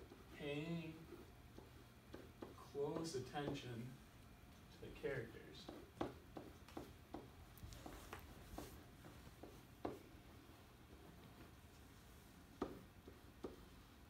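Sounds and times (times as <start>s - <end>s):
marker writing on a whiteboard: 0.0s - 3.9s, 4.7s - 14.0s.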